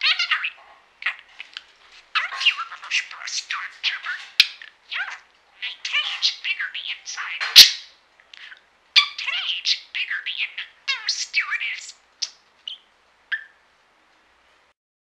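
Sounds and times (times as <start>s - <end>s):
budgerigar chattering: 0.0s - 13.5s
bird chirps: 0.0s - 13.6s.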